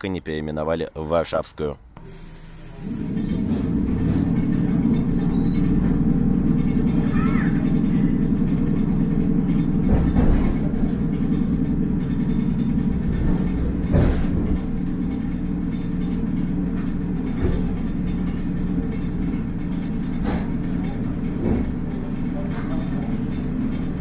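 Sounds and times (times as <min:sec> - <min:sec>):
train interior hum and rumble: 0:00.0 - 0:24.0
brief high squeal: 0:02.0 - 0:03.4, 0:05.3 - 0:05.8.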